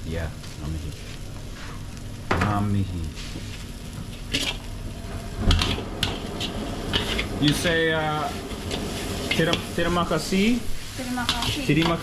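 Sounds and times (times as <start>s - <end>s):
noodles sizzling in a wok: 0.0s - 12.0s
metal ladle scraping wok: 4.3s - 10.0s.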